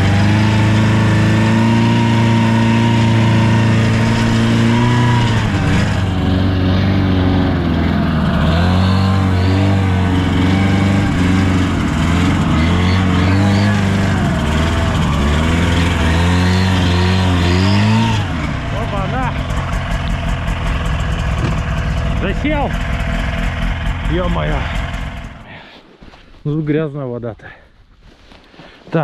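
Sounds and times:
vehicle engine revving: 0.0s - 25.7s.

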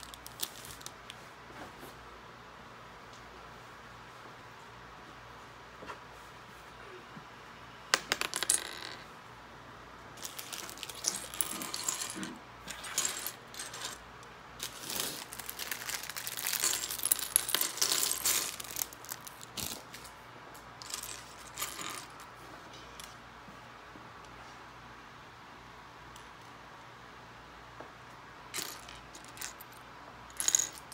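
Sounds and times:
plastic lego pieces clattering: 0.0s - 1.0s, 10.2s - 14.0s, 14.6s - 20.1s, 28.6s - 30.9s.

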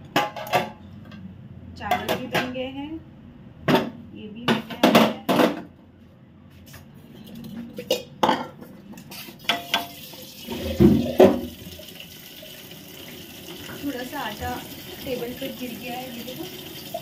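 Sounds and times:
metal dishes and utensils clinking: 7.2s - 11.5s.

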